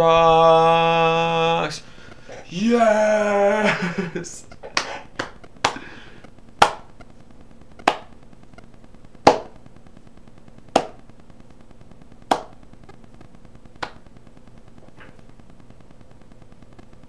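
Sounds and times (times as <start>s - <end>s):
finger snaps: 4.8s - 5.9s, 7.8s - 8.1s, 12.3s - 12.6s, 13.8s - 14.0s.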